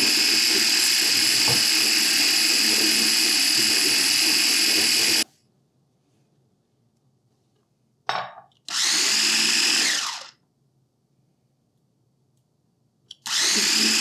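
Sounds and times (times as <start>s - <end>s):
food chopper whining: 0.0s - 5.3s, 8.7s - 10.4s, 13.1s - 14.0s.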